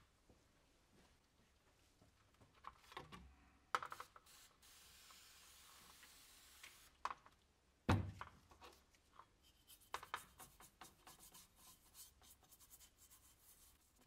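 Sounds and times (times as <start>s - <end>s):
brush scrubbing metal plate: 9.5s - 14.0s.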